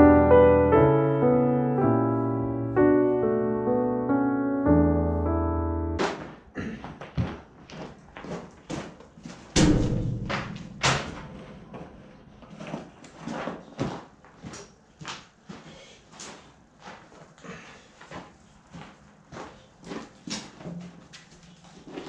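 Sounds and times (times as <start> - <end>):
footsteps in wooden shed: 6.0 - 9.8, 10.4 - 22.0
sharp knock: 9.6 - 12.0
heavy slam: 9.6 - 12.3.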